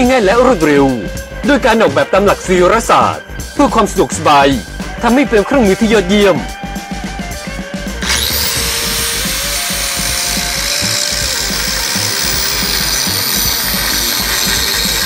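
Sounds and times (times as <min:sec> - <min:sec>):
angle grinder on metal: 0:08.0 - 0:15.0.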